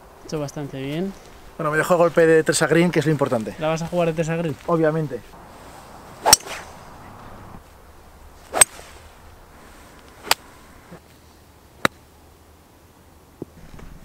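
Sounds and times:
golf club striking ball: 6.2 - 10.6.

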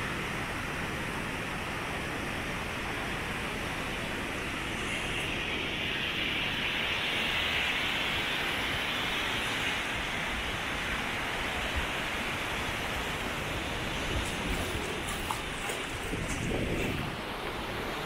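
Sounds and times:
steady rushing hiss: 0.0 - 18.0.

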